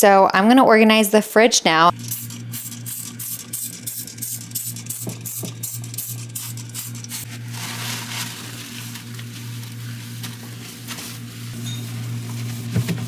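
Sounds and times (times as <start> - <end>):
steady low hum: 1.8 - 13.0
spray bottle squirts: 2.0 - 7.2
paper towel wiping glass: 7.3 - 13.0.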